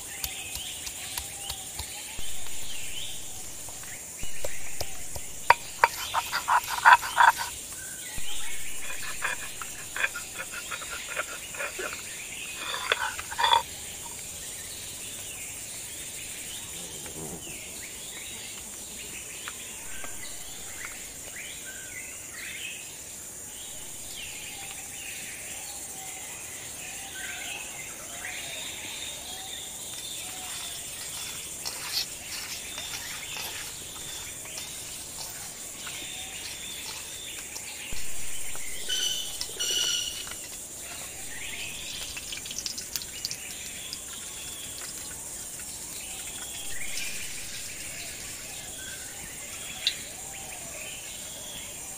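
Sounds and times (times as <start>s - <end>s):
bird chirps: 0.0s - 15.2s, 29.6s - 45.0s
insects buzzing: 0.0s - 51.9s
stone roller grinding spices: 0.1s - 14.2s, 30.0s - 43.1s.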